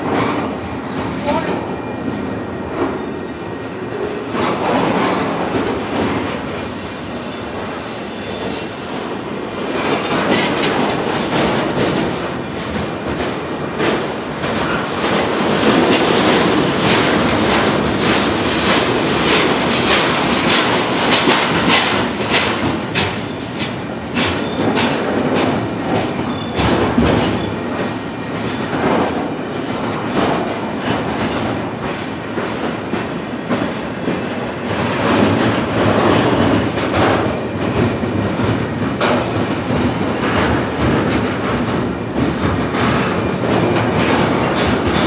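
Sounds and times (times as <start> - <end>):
train wheels rumbling on rail: 0.0 - 45.0
wheels clacking over rail joints: 4.0 - 45.0.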